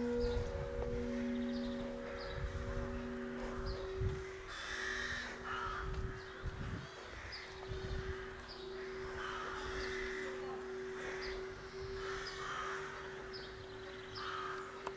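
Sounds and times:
steady low hum: 0.0s - 6.8s
crows cawing: 1.0s - 13.3s, 14.2s - 14.8s.

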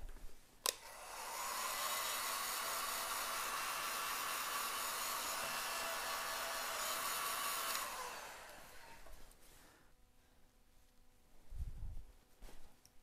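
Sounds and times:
hot-air gun blowing: 0.7s - 9.3s.

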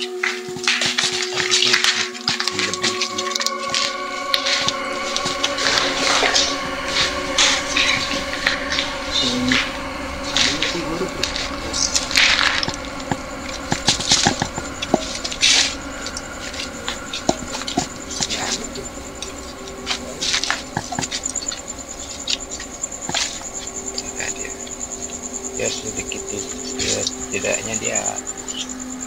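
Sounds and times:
footsteps: 0.0s - 28.7s
night insect trilling: 0.0s - 29.0s.

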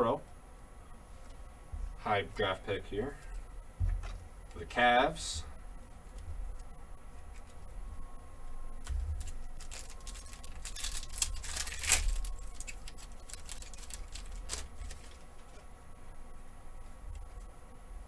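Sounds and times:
foil wrapper crinkling: 8.8s - 15.6s.

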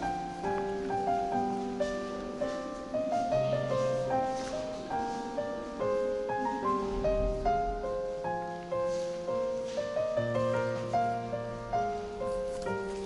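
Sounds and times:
gentle piano melody: 0.0s - 13.0s.

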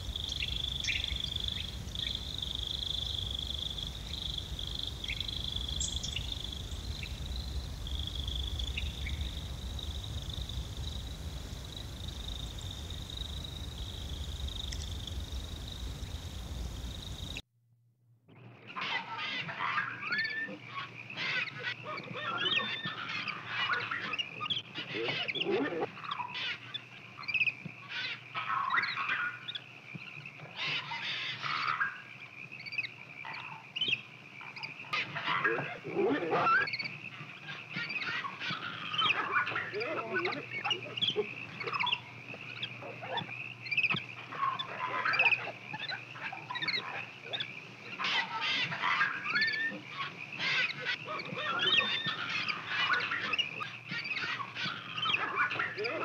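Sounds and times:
insects droning: 0.0s - 17.4s, 18.8s - 56.0s
low rumble: 0.0s - 17.4s
monkeys squealing and chirping: 21.2s - 29.4s, 34.5s - 56.0s.

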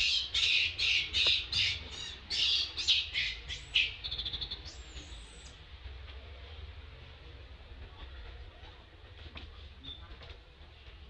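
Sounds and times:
baby monkey screaming: 0.0s - 4.0s.

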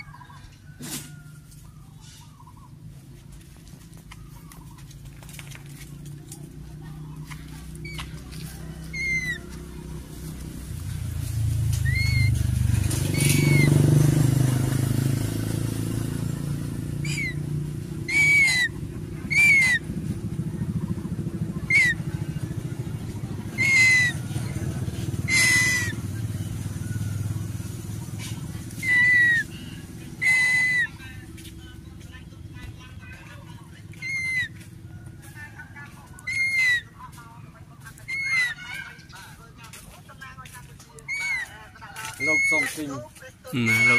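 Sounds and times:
low engine rumble: 0.0s - 43.9s
short whistled bird calls: 11.8s - 12.4s, 13.1s - 13.7s, 18.1s - 19.8s, 43.6s - 43.9s.

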